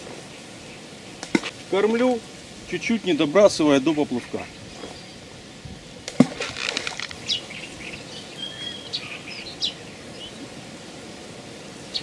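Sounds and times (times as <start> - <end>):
small birds chirping: 0.0 - 12.0
short rustle: 5.7 - 7.4
whistled bird call: 7.2 - 10.5.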